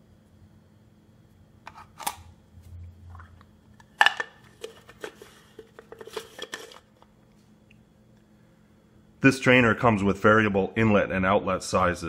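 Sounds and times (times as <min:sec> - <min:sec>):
small clicks and scrapes: 0:04.4 - 0:07.1.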